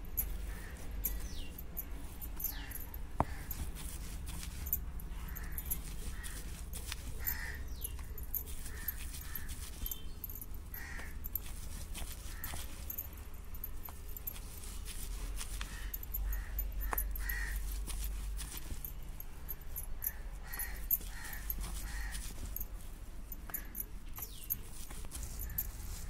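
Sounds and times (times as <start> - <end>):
bird cawing: 7.2 - 7.9, 8.7 - 11.4, 15.7 - 17.6, 20.0 - 22.3.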